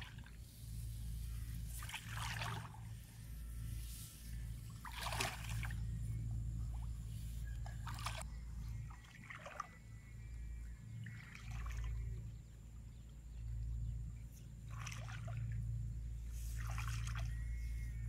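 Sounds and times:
water splashing from wading: 0:00.0 - 0:03.1, 0:04.6 - 0:06.1, 0:06.7 - 0:10.3, 0:10.9 - 0:12.4, 0:14.6 - 0:17.6
steady low rumble: 0:00.0 - 0:18.0.

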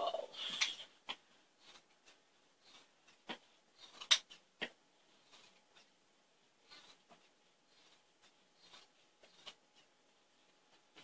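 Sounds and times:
fabric rustling and scraping: 0:00.0 - 0:11.0
scissors snipping fabric: 0:00.6 - 0:05.9, 0:06.6 - 0:09.9.

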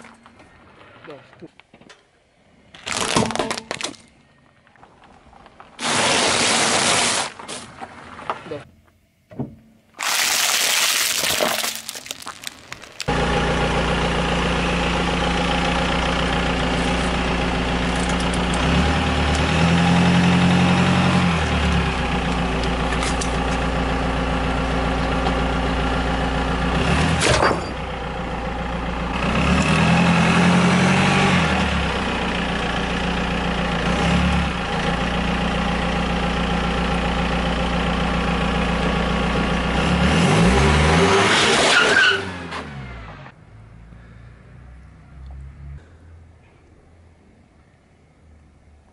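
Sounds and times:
car engine idling: 0:11.8 - 0:26.8, 0:27.7 - 0:29.4, 0:31.6 - 0:39.8.

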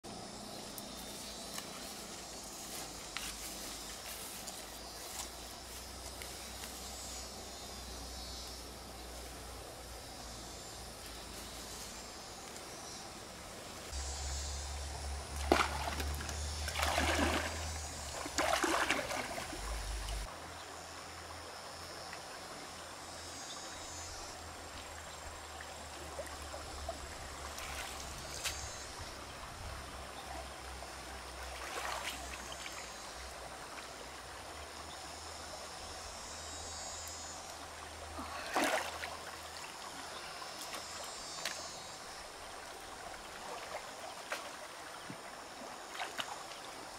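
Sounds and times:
stream trickling: 0:00.1 - 0:46.9
splashes from wading: 0:15.3 - 0:20.3, 0:38.2 - 0:39.4, 0:43.3 - 0:46.8.

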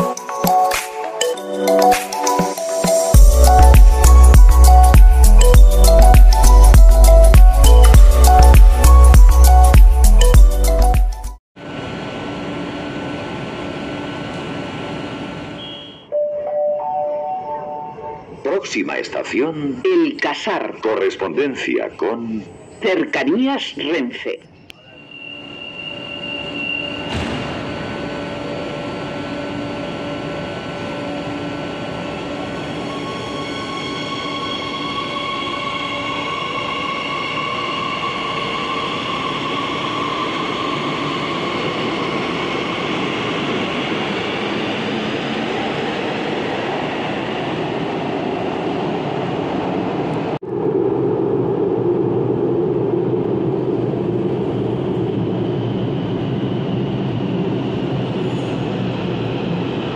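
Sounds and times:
low train rumble in tunnel: 0:11.6 - 0:59.9
warning tone: 0:15.6 - 0:18.4
train doors shutting: 0:24.7 - 0:44.1.

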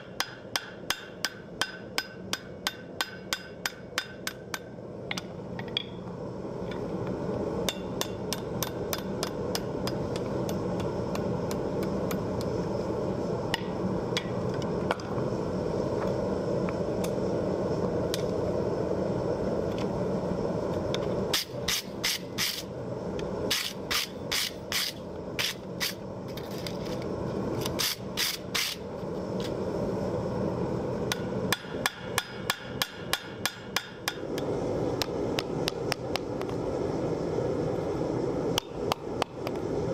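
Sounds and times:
hammer striking hot steel: 0:00.0 - 0:06.0, 0:07.6 - 0:12.5, 0:13.5 - 0:15.0, 0:21.3 - 0:22.7, 0:23.5 - 0:26.0, 0:31.1 - 0:36.3.

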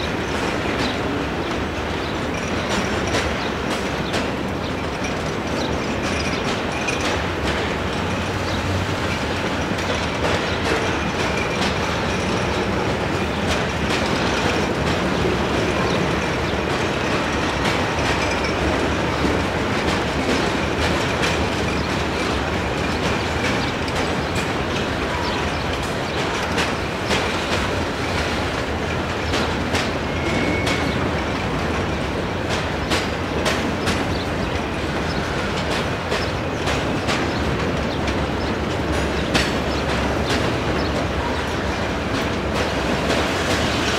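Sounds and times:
train wheels rumbling on rail: 0:00.0 - 0:43.9
high wheel squeals: 0:30.0 - 0:31.3.

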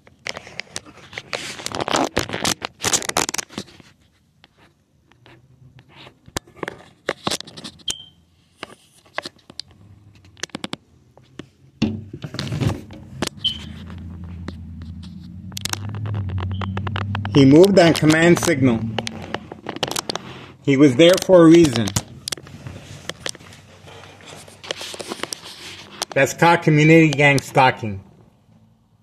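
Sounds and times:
device handling noise: 0:00.2 - 0:26.2
low steady hum: 0:11.8 - 0:20.7.

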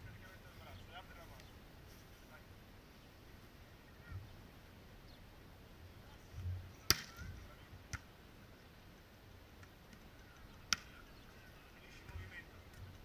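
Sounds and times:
hand striking volleyball: 0:10.7 - 0:10.9.

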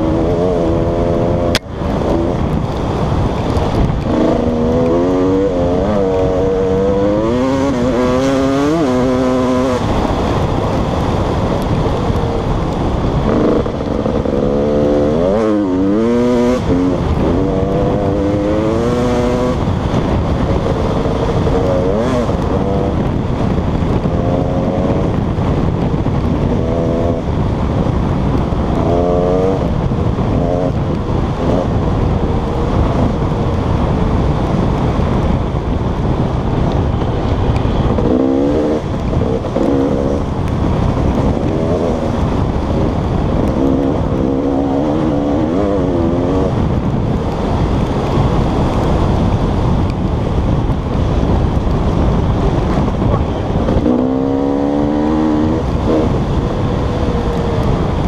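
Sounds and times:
dirt bike engine revving: 0:00.0 - 0:25.3, 0:26.2 - 0:35.4, 0:36.8 - 0:49.3, 0:52.1 - 0:58.0
wind rush: 0:00.0 - 0:58.0.

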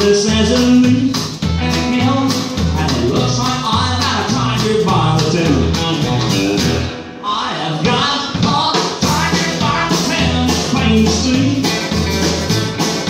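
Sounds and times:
country band playing: 0:00.0 - 0:13.0.

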